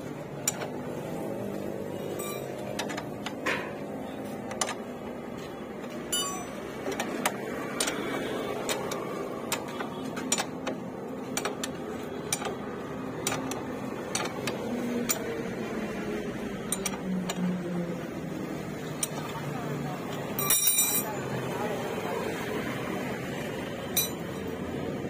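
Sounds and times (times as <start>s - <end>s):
spanner clicking on metal: 0.4s - 0.8s, 6.1s - 12.6s, 13.2s - 15.4s, 16.7s - 17.6s, 18.9s - 19.3s, 20.4s - 21.1s, 24.0s - 24.5s.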